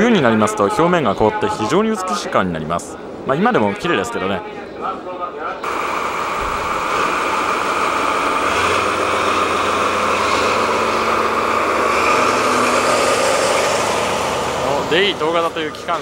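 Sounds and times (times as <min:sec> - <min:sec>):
deeper hum: 0:05.6 - 0:15.3
diesel engine idling: 0:05.6 - 0:16.0.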